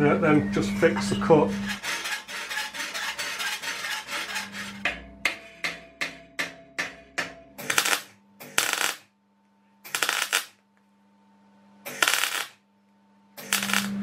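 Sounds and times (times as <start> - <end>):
hammer tapping steel bar: 4.8 - 7.5
arc welding crackle: 7.6 - 9.1, 9.8 - 10.6, 11.9 - 12.6, 13.4 - 14.0.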